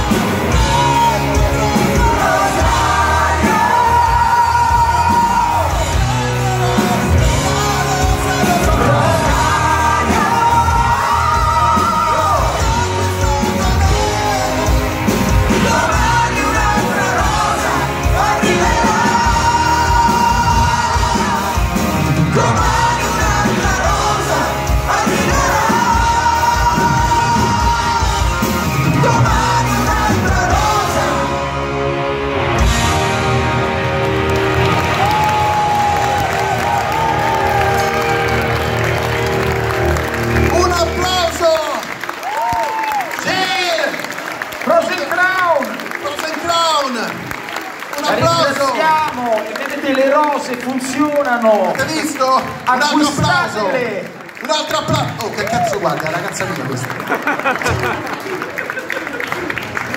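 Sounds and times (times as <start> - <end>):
several people singing: 0.0 - 31.5
electric guitar: 0.0 - 41.0
drums: 0.0 - 44.6, 51.7 - 53.8, 54.8 - 58.6.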